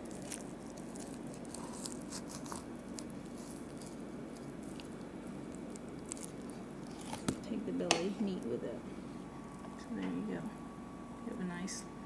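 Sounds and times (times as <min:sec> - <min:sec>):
low steady hum: 0:00.0 - 0:12.0
knife slicing meat wet squishing: 0:05.8 - 0:07.4.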